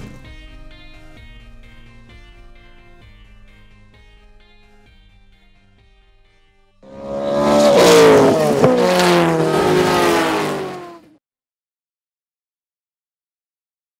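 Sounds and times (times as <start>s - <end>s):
race car engine at high revs: 6.9s - 11.1s.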